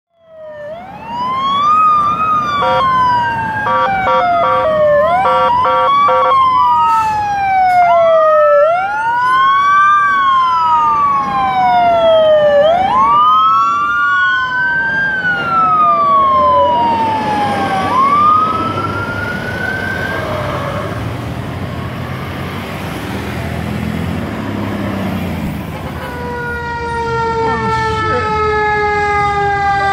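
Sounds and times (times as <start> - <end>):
sirens wailing: 0.1 - 29.9
short horn blasts: 3.7 - 6.4.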